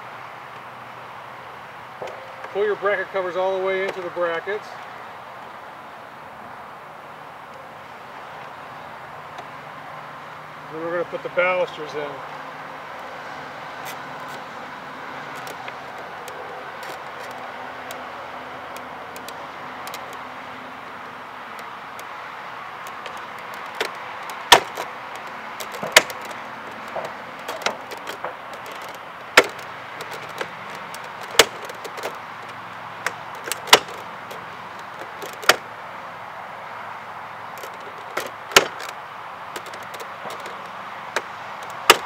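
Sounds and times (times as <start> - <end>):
steady background noise: 0.0 - 42.0
plastic balusters clicking into rail: 22.9 - 35.7, 37.6 - 42.0.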